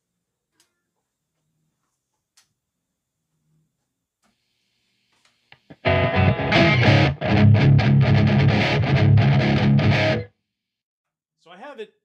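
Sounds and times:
distorted electric guitar riff: 5.6s - 10.3s.

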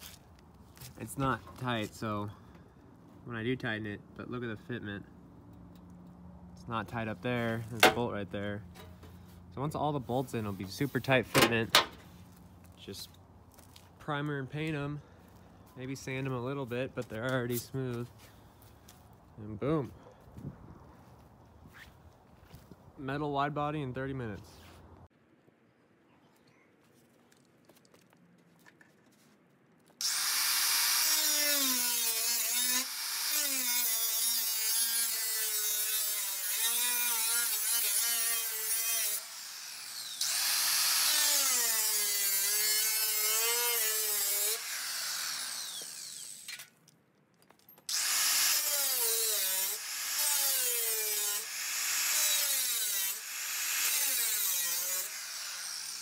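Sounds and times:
angle grinder cutting steel: 30.0s - 46.7s, 47.9s - 56.0s.

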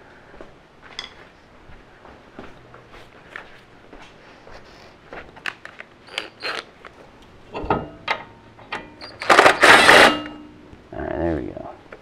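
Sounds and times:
metal tools clinking and rattling: 7.5s - 10.5s
loud harsh burst: 9.2s - 10.3s.

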